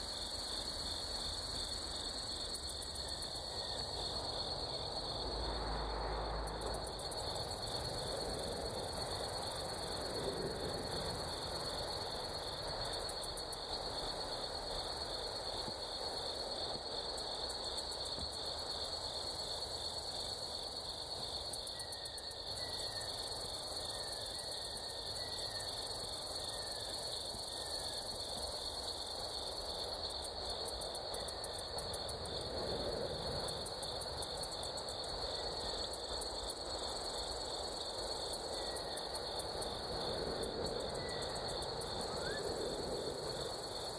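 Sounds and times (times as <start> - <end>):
insect chorus drone: 0.0 - 43.9.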